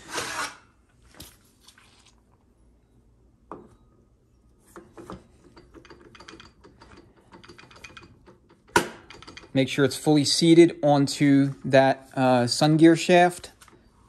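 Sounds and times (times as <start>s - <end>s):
faint metal clicks and rattles: 4.8s - 9.8s.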